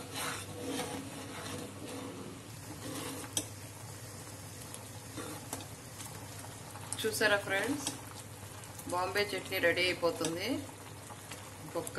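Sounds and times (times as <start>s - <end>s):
ladle stirring in a pot: 0.0s - 3.8s, 4.8s - 7.0s
thick sauce simmering in a pot: 0.0s - 11.9s.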